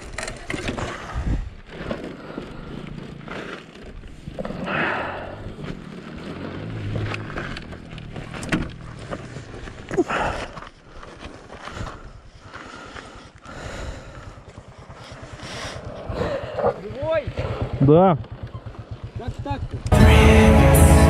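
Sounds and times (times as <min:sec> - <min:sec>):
motorcycle clunking on gravel: 0:00.0 - 0:12.6.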